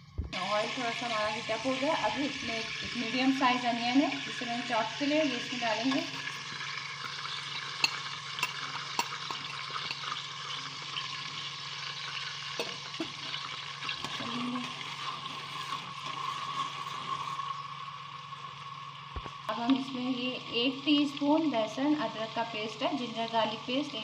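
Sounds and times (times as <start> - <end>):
onion sizzling in hot oil: 0.4 - 24.0
spoon clicking on a pot: 7.0 - 10.2.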